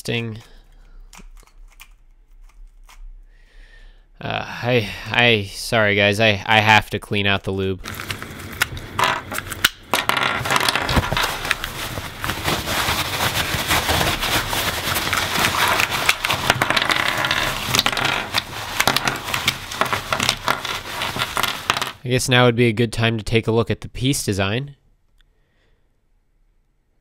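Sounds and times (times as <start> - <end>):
crackling and scraping: 0.0 - 3.2, 7.8 - 22.0.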